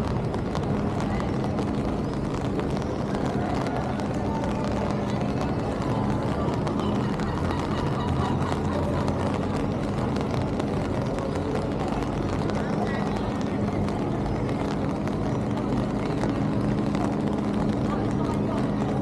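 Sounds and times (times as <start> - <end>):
murmur of voices: 0.0 - 19.0.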